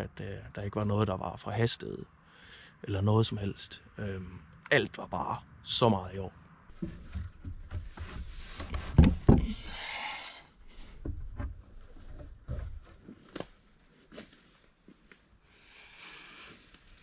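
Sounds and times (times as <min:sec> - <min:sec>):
short rustle: 0:06.7 - 0:09.4.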